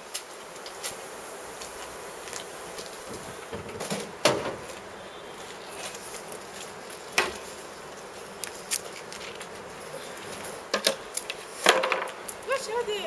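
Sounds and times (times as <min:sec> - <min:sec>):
steady background hiss: 0:00.0 - 0:13.0
objects knocking and clattering: 0:11.6 - 0:12.1
person speaking: 0:12.4 - 0:13.0.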